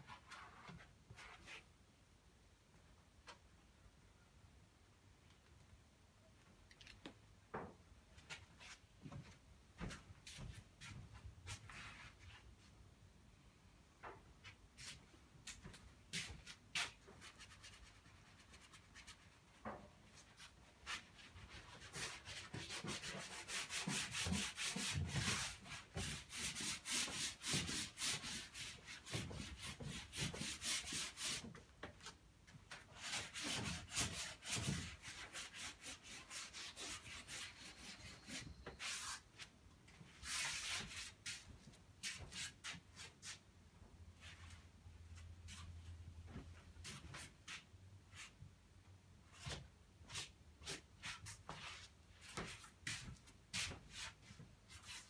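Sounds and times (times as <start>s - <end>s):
paint scraping on canvas: 33.0s - 39.5s.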